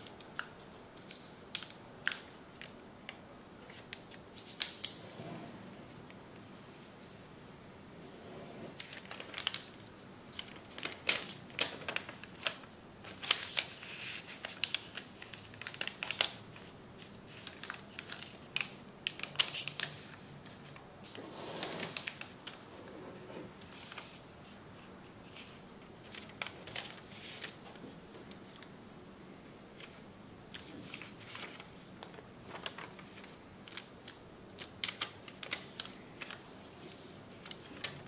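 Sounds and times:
paper crinkling and rustling: 0:08.7 - 0:28.8, 0:29.8 - 0:38.0
sharp paper crackles: 0:08.8 - 0:22.8, 0:25.3 - 0:27.8, 0:29.8 - 0:38.0.

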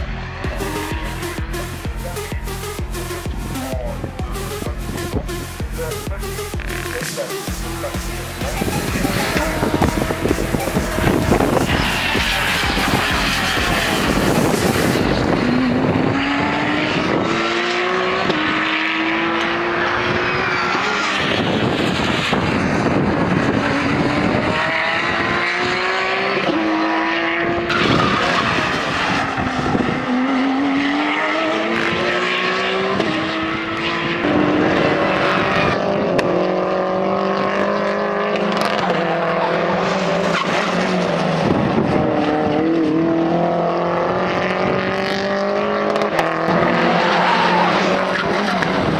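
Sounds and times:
race car engines at full throttle: 0:00.0 - 0:48.9.

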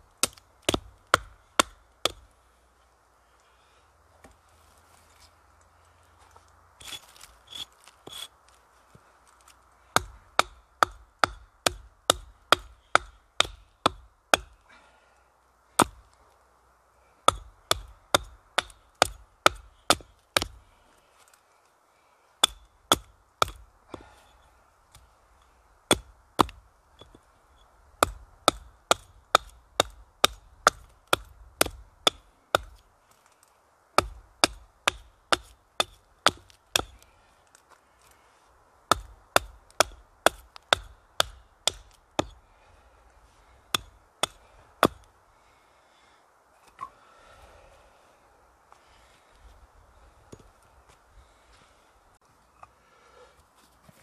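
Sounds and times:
hatchet chopping wood: 0:00.2 - 0:02.3, 0:09.9 - 0:14.6, 0:15.8 - 0:16.0, 0:17.2 - 0:20.6, 0:22.4 - 0:24.1, 0:25.9 - 0:27.2, 0:28.0 - 0:32.8, 0:34.0 - 0:37.0, 0:38.9 - 0:42.4, 0:43.7 - 0:45.1.

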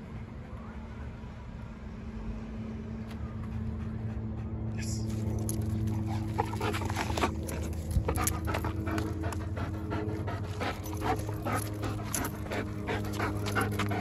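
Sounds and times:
dog panting: 0:03.4 - 0:14.0.

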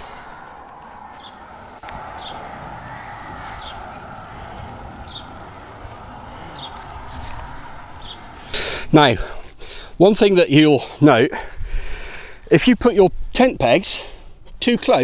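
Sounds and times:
bird chirping: 0:00.0 - 0:08.8.

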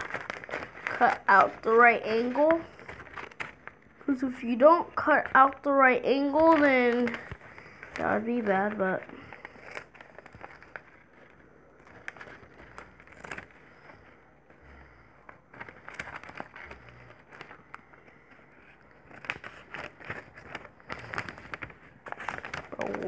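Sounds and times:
scissors cutting paper: 0:00.0 - 0:11.0
paper rustling: 0:00.0 - 0:23.0.

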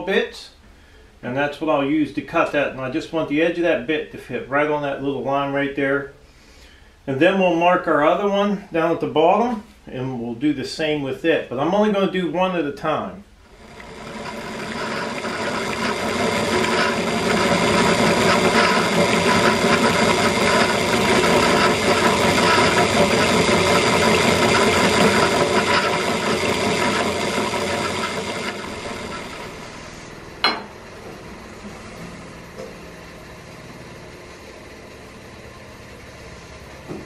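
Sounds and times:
drill press whine: 0:13.4 - 0:37.0
hole saw grinding metal: 0:13.5 - 0:29.6.

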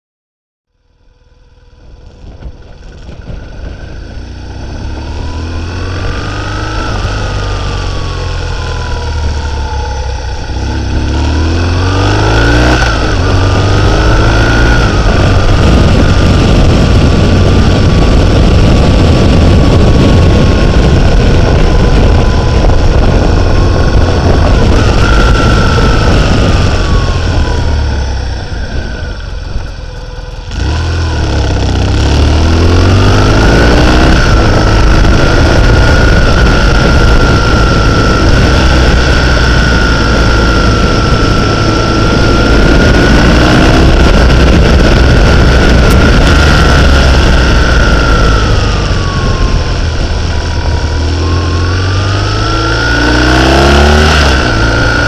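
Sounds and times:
motorcycle engine revving: 0:00.7 - 0:55.0
wind rushing over microphone: 0:00.9 - 0:55.0.

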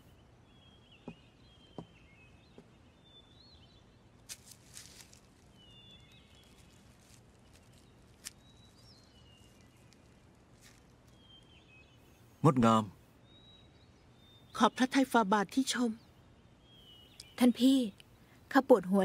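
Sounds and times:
faint birds chirping: 0:00.0 - 0:19.0.

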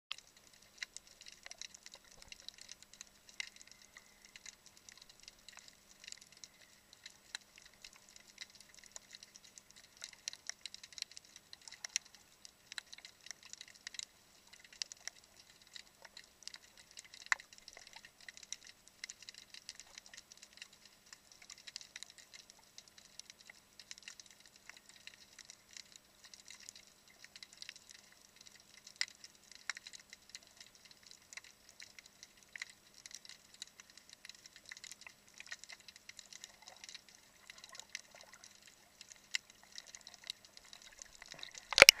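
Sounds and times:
snapping shrimp clicks: 0:41.2 - 0:42.0.

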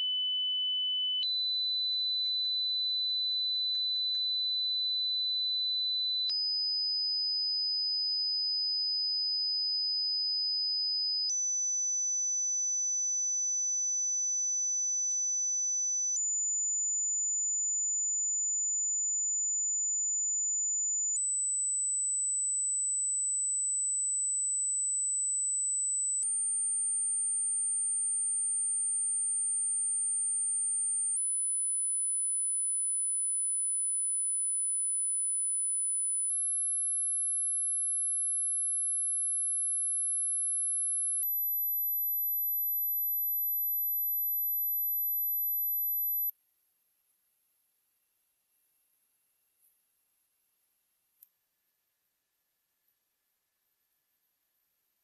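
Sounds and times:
sine wave test tones: 0:00.0 - 0:46.4.

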